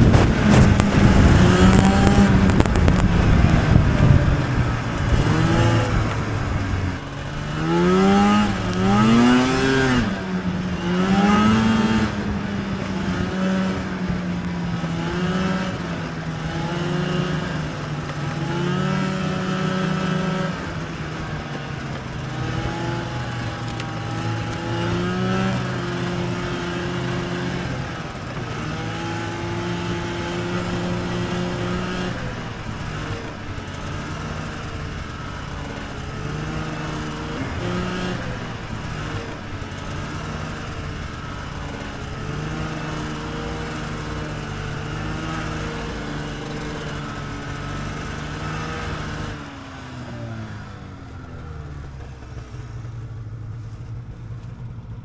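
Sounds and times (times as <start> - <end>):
wind noise: 0.0 - 49.4
track noise: 0.0 - 49.5
snowmobile engine: 0.0 - 55.0.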